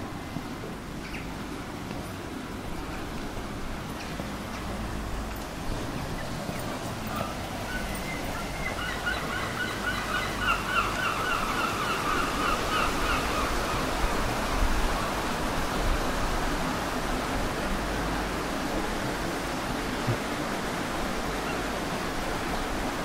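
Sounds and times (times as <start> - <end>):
gull calling: 7.1 - 13.9.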